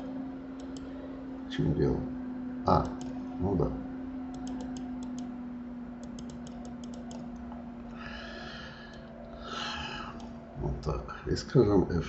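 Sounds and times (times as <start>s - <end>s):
steady low hum: 0.0s - 12.0s
mouse button clicking: 4.3s - 5.3s.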